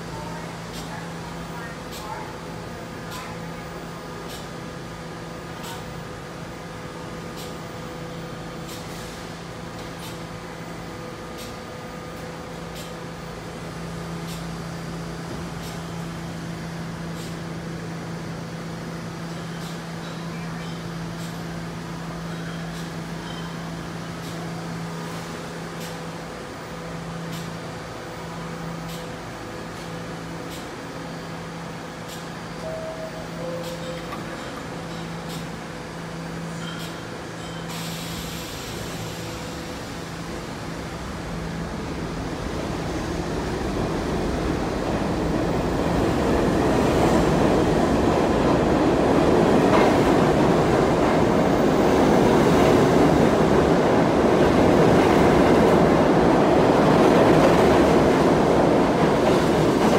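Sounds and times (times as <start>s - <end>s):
train hum with held tones: 0.0s - 59.9s
short air hisses: 37.7s - 39.6s.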